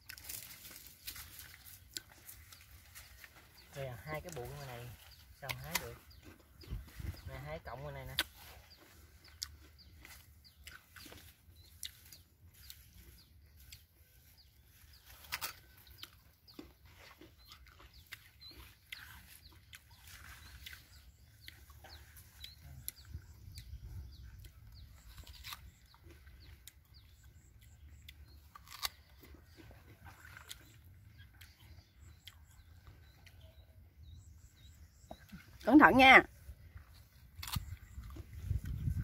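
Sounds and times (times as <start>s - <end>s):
leaves rustling: 0.0s - 6.1s
plant stalks snapping: 5.4s - 6.0s, 15.2s - 15.6s, 25.2s - 25.7s, 28.5s - 29.0s, 37.4s - 37.8s.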